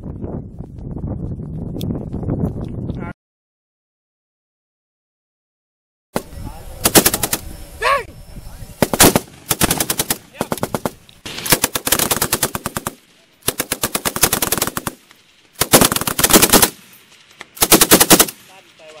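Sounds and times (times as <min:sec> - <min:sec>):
machine gun firing bursts: 0:06.8 - 0:07.4, 0:08.8 - 0:15.0, 0:15.6 - 0:16.9, 0:17.6 - 0:18.5.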